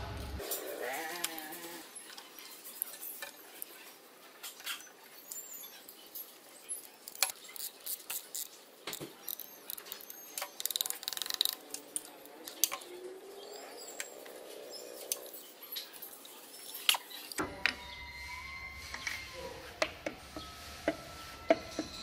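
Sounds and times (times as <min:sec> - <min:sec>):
metal clicks and clinks: 0:02.0 - 0:13.0.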